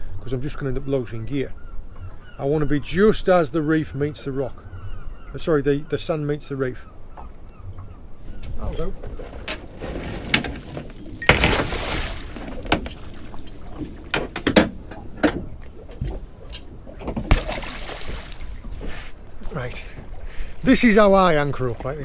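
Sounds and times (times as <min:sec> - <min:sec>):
water splashing: 0:08.9 - 0:22.0.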